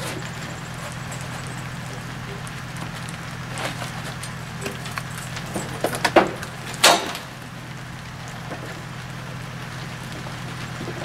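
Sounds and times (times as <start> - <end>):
scraping on masonry: 0.0 - 7.3
low mechanical hum: 0.0 - 11.0.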